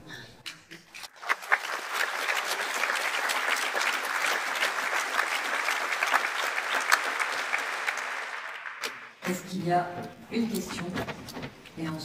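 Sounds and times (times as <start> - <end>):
audience applauding: 0.9 - 9.4.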